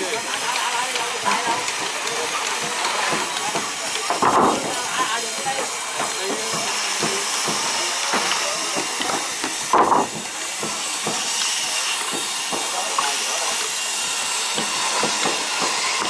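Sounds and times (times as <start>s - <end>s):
steady hiss: 0.0s - 16.0s
wooden planks knocking: 1.4s - 11.3s.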